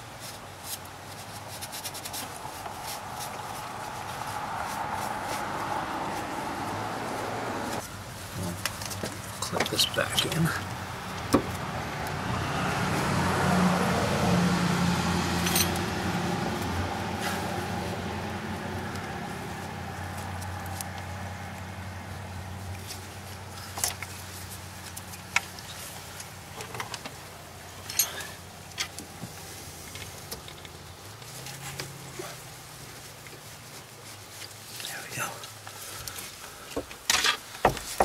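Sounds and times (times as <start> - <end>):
low vehicle engine hum: 1.1 - 36.7
light clicks and knocks of metal parts: 22.7 - 32.4.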